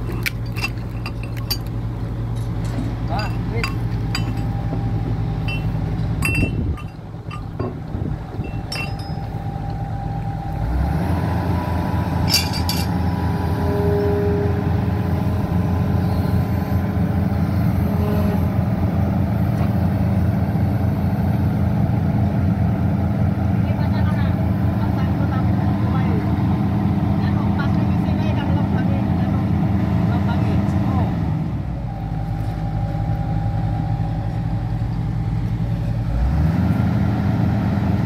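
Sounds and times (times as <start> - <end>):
metal clinks on bucket linkage: 0.0 - 4.6, 5.5 - 7.8, 8.4 - 9.3
excavator diesel engine running: 0.0 - 38.0.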